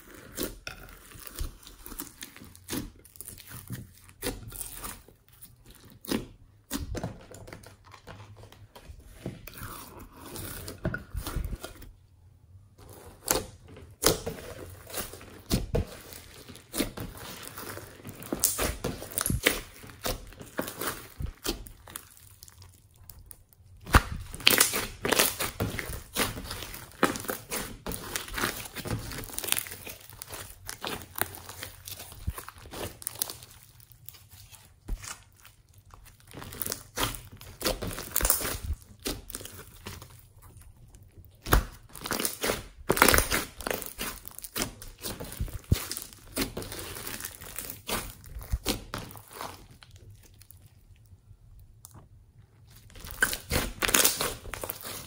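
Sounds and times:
slime squelching: 0:00.0 - 0:07.0, 0:08.1 - 0:55.0
foam beads crackling and popping: 0:15.9 - 0:50.9, 0:52.7 - 0:55.0.

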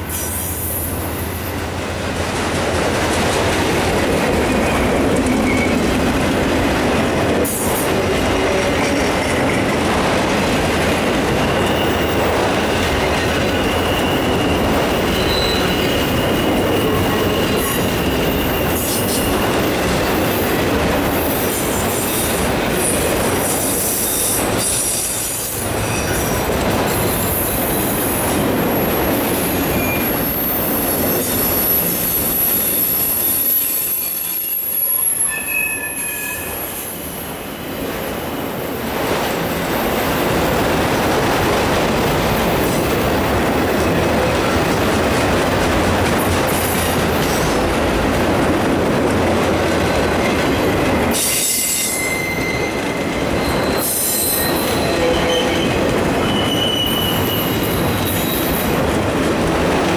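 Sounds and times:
freight train wheels rolling: 0:00.0 - 0:59.9
high wheel squeal: 0:11.4 - 0:19.8, 0:29.6 - 0:36.8, 0:50.5 - 0:58.6.

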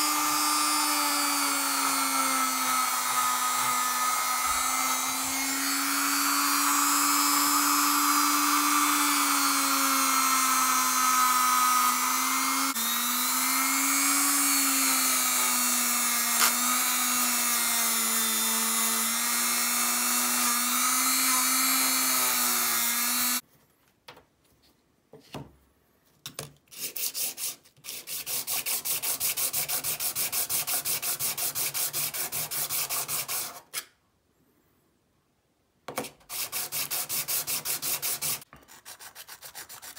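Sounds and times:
rotary tool grinding steel: 0:00.0 - 0:23.4
blade rubbed on sanding block: 0:36.3 - 0:39.9.

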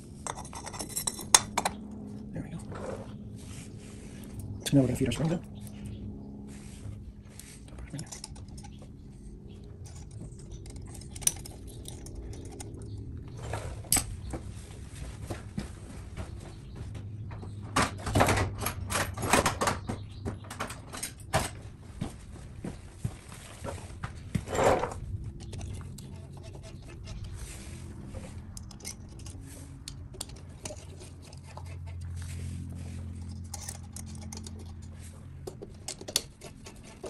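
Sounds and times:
low steady hum: 0:00.0 - 0:19.8
small metal parts clinking: 0:00.2 - 0:01.8, 0:07.8 - 0:08.8, 0:09.8 - 0:13.1, 0:28.5 - 0:31.5, 0:33.2 - 0:37.0.

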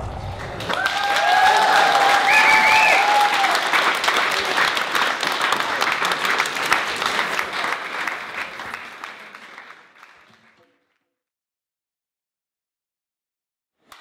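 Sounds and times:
audience applauding: 0:00.2 - 0:10.8.

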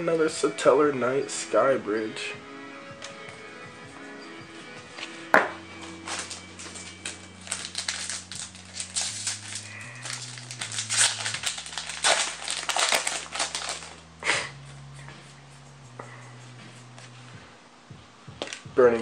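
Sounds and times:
background music with bass: 0:00.0 - 0:19.0
cards rustling: 0:05.8 - 0:14.1
foil wrappers crinkling: 0:05.8 - 0:14.1.

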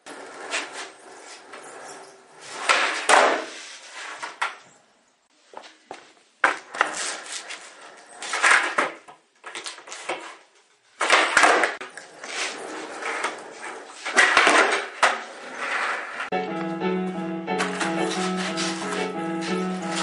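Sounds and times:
skateboard rolling on hard floor: 0:00.0 - 0:04.6, 0:05.5 - 0:16.8, 0:17.6 - 0:20.0
skateboard tail clacks: 0:02.5 - 0:04.6, 0:11.0 - 0:16.2.

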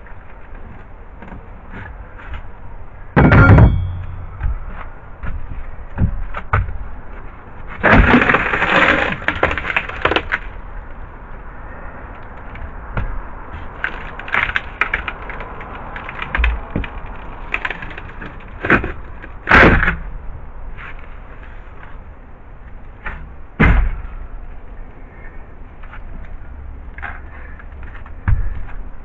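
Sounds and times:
plywood floor cracking and breaking: 0:07.8 - 0:10.6, 0:13.8 - 0:20.0.

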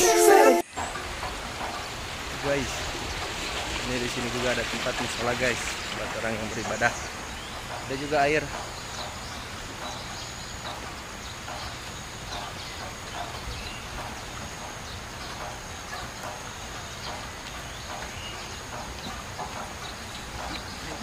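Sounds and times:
steady high-pitched drone: 0:00.0 - 0:00.8.

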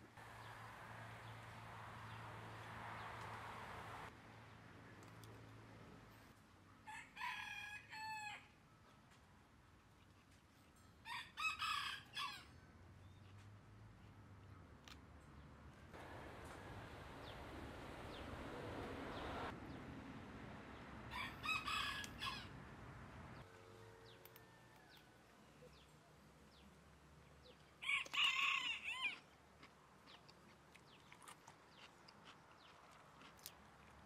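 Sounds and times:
rooster crowing: 0:06.9 - 0:08.5, 0:11.0 - 0:12.5, 0:21.1 - 0:22.5, 0:23.8 - 0:25.3, 0:27.8 - 0:29.2.

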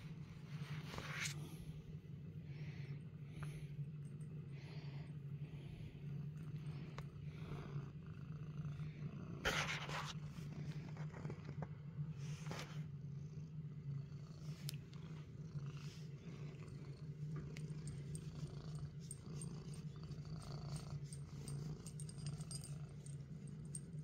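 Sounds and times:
cat purring: 0:00.5 - 0:24.0.

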